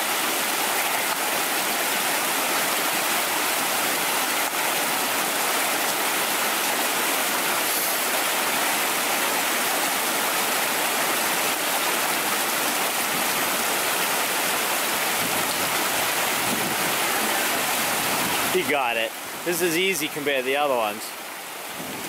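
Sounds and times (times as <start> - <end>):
water rushing over rocks: 0.0 - 22.0.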